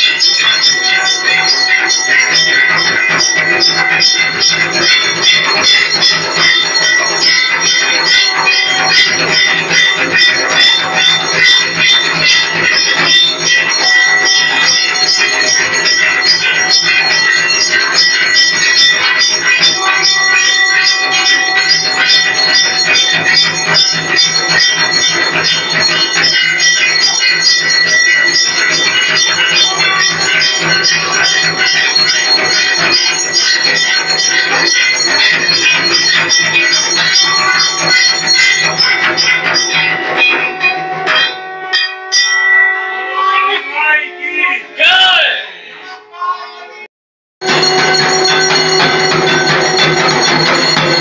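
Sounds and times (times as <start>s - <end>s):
temple bells ringing: 0.0s - 45.1s, 47.4s - 51.0s.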